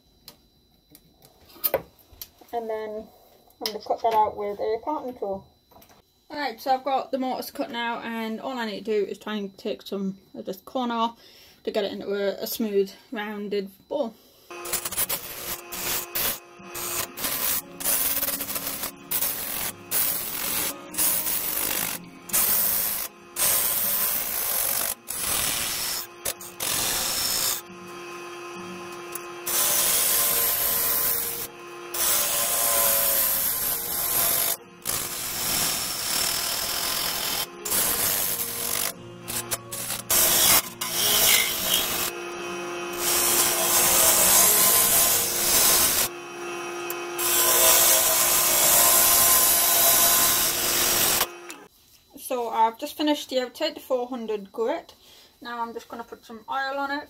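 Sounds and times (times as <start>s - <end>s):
gouge scraping spinning wood: 14.5s - 51.6s
lathe motor hum: 14.5s - 51.7s.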